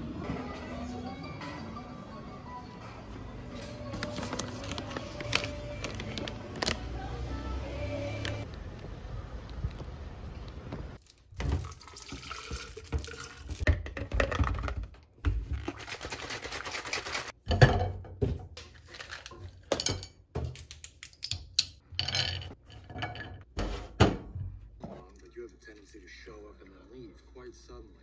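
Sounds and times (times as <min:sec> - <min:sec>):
liquid pouring and sloshing: 0:11.0 - 0:14.8.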